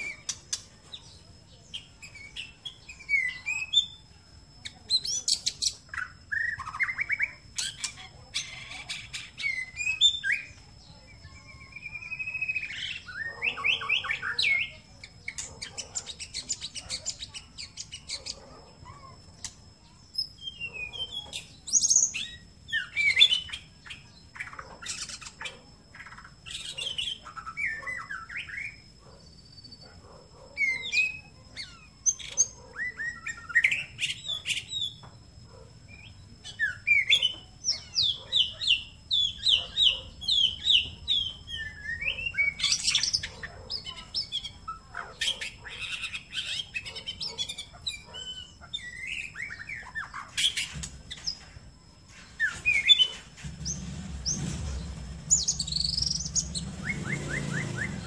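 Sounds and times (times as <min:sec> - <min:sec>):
songbird whistled phrases: 0:00.0 - 0:28.8, 0:35.9 - 0:51.2, 0:55.3 - 0:58.0.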